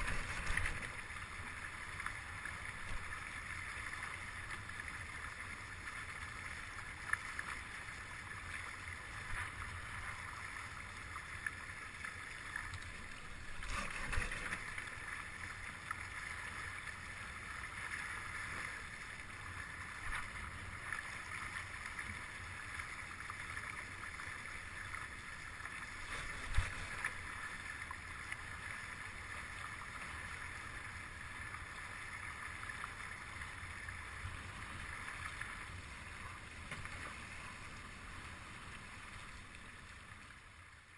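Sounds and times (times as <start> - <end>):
wind rumbling on microphone: 0.0 - 1.2
water rushing along hulls: 0.0 - 40.9.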